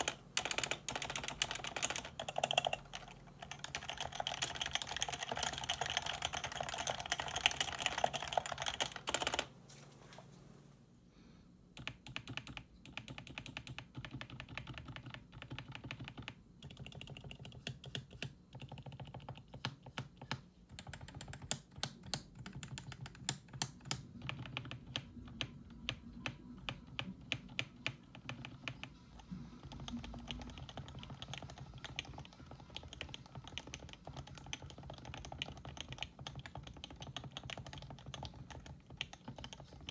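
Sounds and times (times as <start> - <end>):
fast keyboard typing: 0.0 - 9.5, 11.8 - 39.9.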